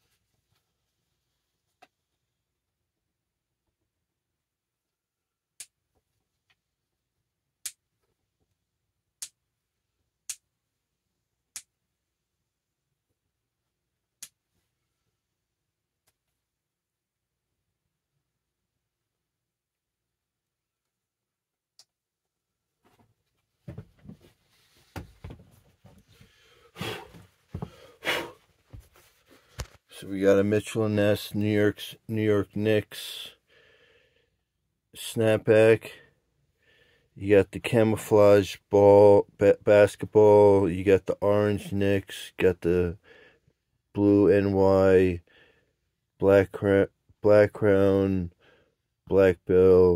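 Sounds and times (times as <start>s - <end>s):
rustling and handling knocks: 22.8s - 26.2s.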